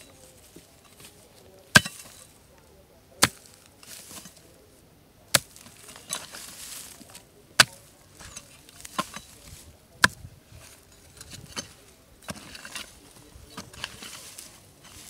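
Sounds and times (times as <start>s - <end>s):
hoe chopping into dry soil: 0.0s - 2.4s, 3.2s - 4.4s, 5.3s - 15.0s.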